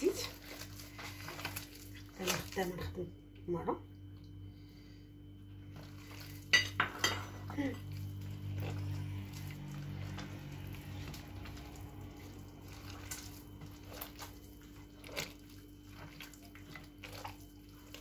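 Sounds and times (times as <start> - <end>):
hand squelching dough: 0.0 - 3.1, 5.6 - 6.5, 7.6 - 18.0
low hum: 0.0 - 18.0.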